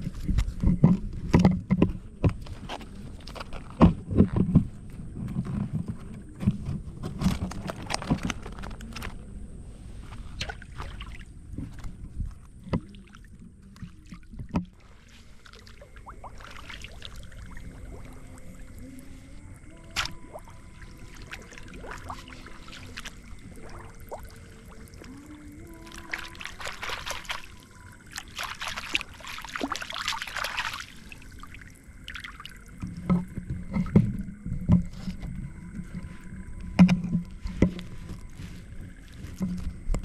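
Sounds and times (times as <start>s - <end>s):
water splashing: 10.1s - 40.0s.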